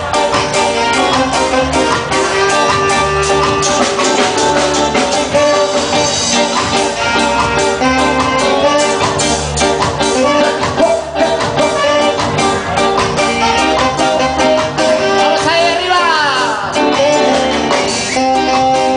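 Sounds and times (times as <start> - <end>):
drum kit: 0.0 - 18.9
guitars: 0.0 - 18.9
trumpet: 0.0 - 18.9.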